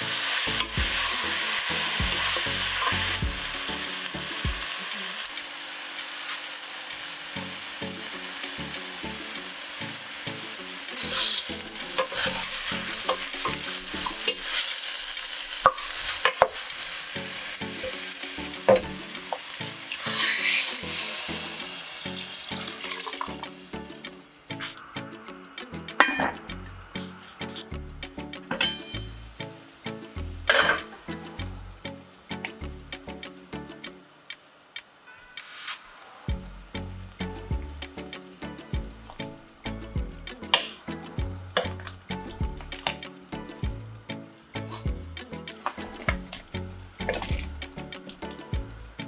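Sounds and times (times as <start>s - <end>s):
water pouring into pot: 0.0s - 24.0s
chicken sizzling in oil: 0.0s - 27.5s, 28.3s - 49.0s.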